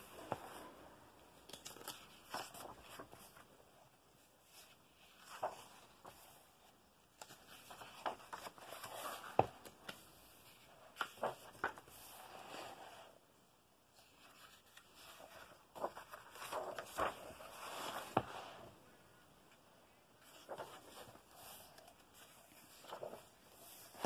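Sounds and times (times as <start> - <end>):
paper pages rustling: 0.0 - 3.6, 4.4 - 12.6, 14.0 - 18.8, 20.2 - 24.0
soft taps on pages: 9.1 - 10.1.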